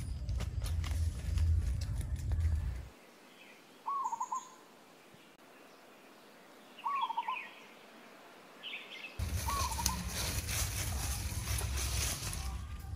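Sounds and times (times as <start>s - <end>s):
low rumble and rustle: 0.0s - 2.9s
faint bird chirps: 3.1s - 4.6s, 5.2s - 7.8s
bird calling: 3.3s - 4.7s, 6.7s - 7.8s, 8.6s - 10.2s.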